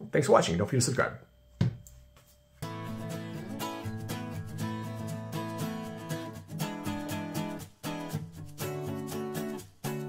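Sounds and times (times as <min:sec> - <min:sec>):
strummed guitar chords: 0:02.6 - 0:10.0.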